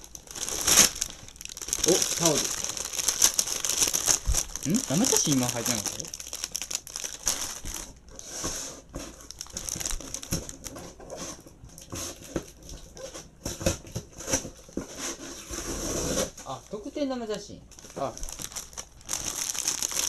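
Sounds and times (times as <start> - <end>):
plastic packaging crinkling: 0.0 - 13.2, 17.7 - 20.0.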